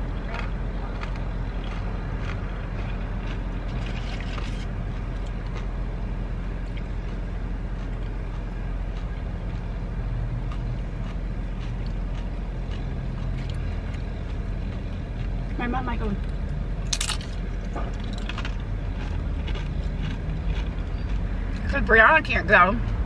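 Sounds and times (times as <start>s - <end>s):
low vehicle drone: 0.0s - 23.0s
chewing clicks: 0.3s - 4.4s, 18.0s - 21.6s.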